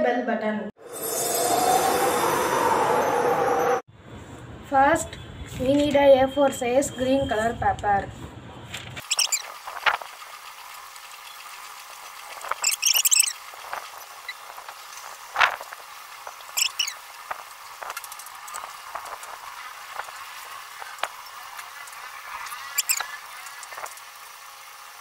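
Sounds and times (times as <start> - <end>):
paper fold crackles: 8.7 - 10.7
paper rustling and crinkling: 8.7 - 12.8.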